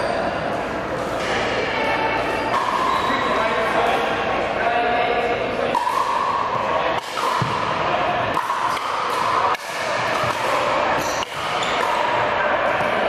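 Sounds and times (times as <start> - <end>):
steady background hum: 0.0 - 13.0.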